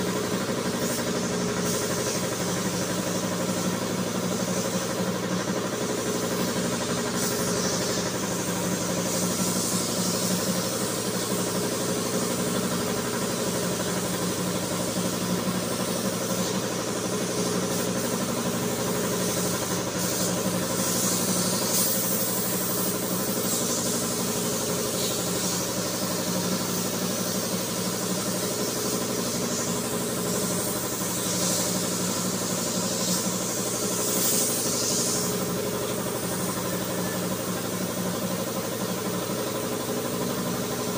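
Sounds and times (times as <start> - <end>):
air compressor running: 0.0 - 40.9
compressed air hissing: 0.0 - 40.9.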